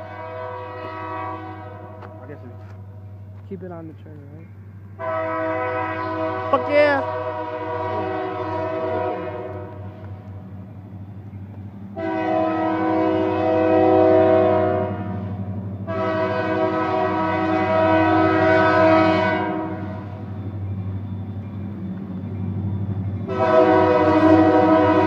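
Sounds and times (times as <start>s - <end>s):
locomotive air horn blasts: 0.0s - 2.3s, 5.0s - 10.0s, 12.0s - 20.2s, 23.2s - 25.0s
diesel locomotive rumble: 0.0s - 25.0s.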